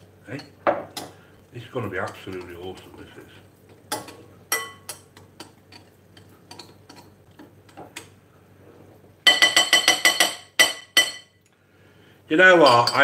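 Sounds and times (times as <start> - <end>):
fork clinking in glass bowl: 3.9 - 7.1.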